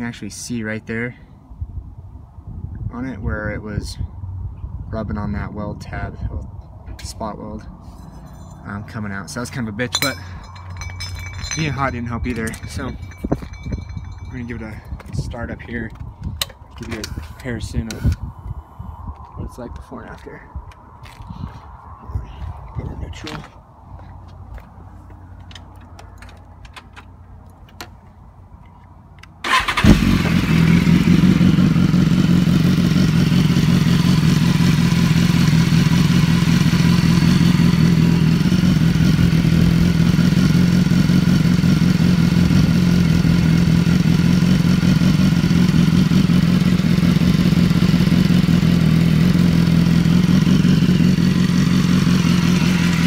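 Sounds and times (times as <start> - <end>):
motorcycle engine starting and idling: 8.0 - 18.3, 29.2 - 53.0.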